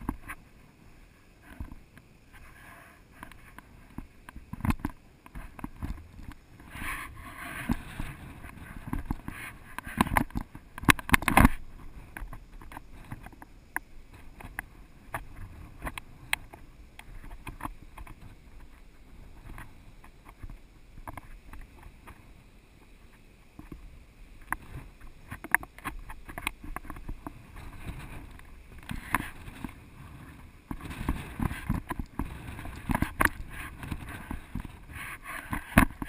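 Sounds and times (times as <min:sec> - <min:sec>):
wind rumble on microphone: 0:00.0 - 0:36.0.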